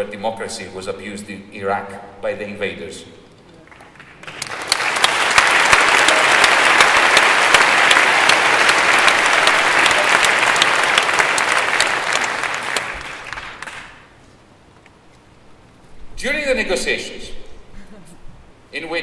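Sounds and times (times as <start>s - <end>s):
audience applauding: 3.6s - 14.1s.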